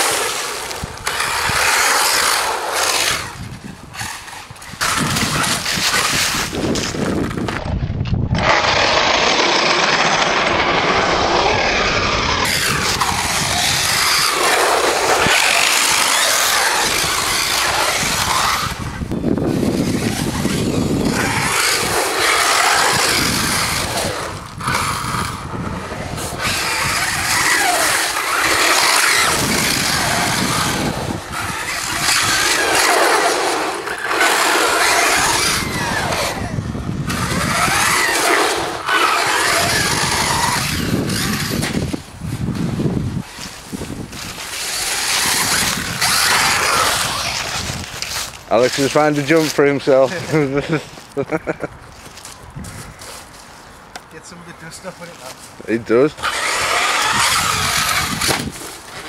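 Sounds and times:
rc car motor whine: 0.0s - 7.6s, 8.4s - 49.3s, 55.8s - 59.0s
tyres throwing dirt and gravel: 8.4s - 51.4s.

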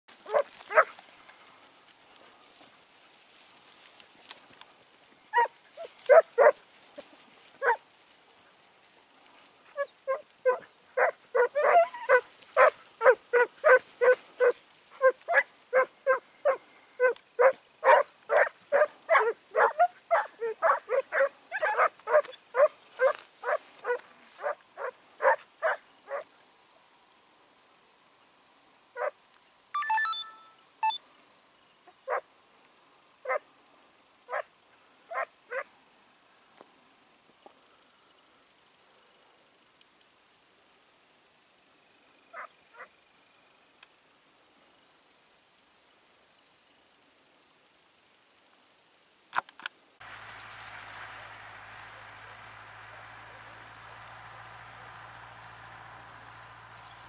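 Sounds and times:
hounds baying: 0.2s - 1.0s, 5.3s - 7.8s, 9.7s - 26.3s.

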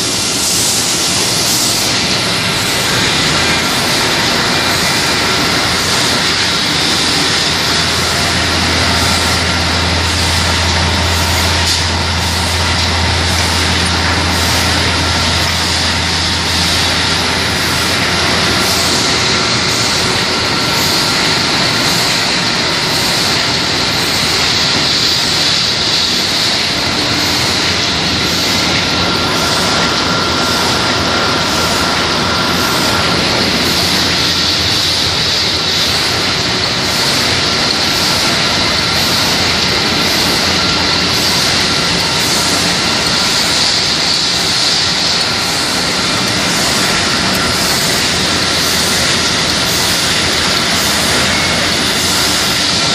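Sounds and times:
machinery mechanical din: 0.0s - 52.9s
deep hum: 3.3s - 21.6s.

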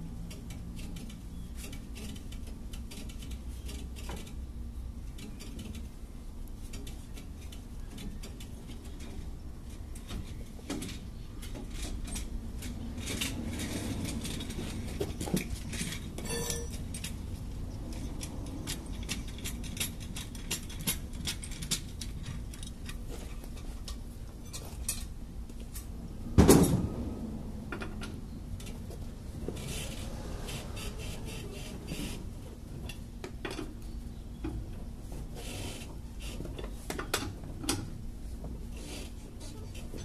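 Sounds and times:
metallic tool clinks: 16.2s - 16.8s.

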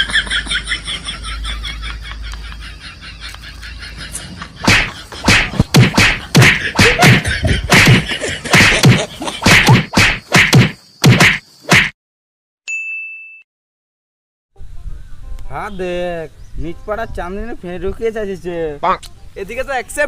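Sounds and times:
loud whacking hits: 4.6s - 12.0s.

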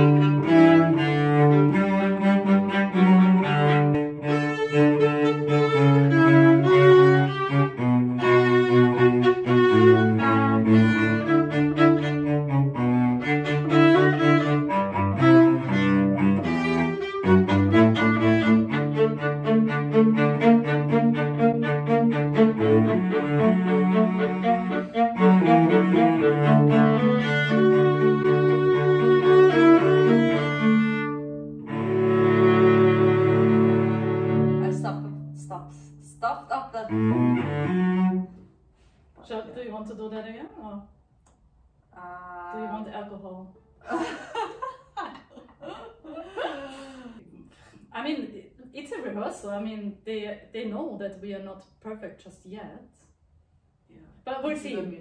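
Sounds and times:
cello sustaining low notes: 0.0s - 38.6s, 42.0s - 44.4s
viola melody: 0.0s - 38.6s, 42.0s - 43.2s.

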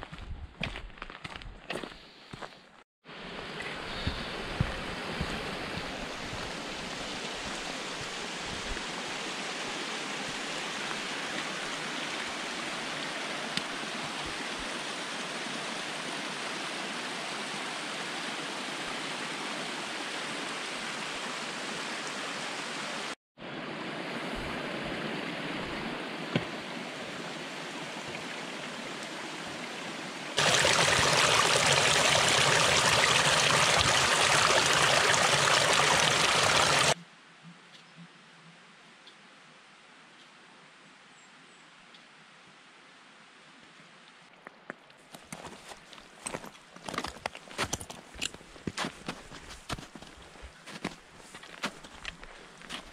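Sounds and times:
mountain stream rushing: 3.1s - 37.0s
water splashing over plastic bottle: 30.4s - 37.0s.

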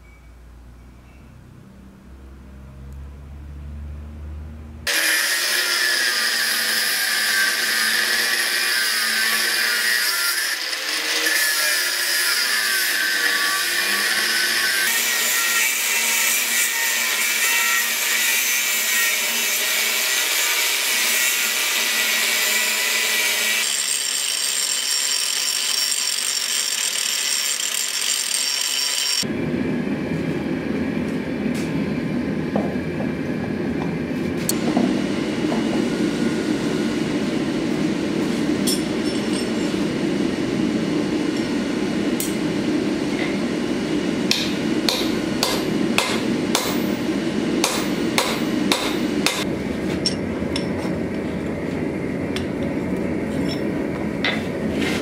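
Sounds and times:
angle grinder cutting steel: 4.9s - 29.3s.

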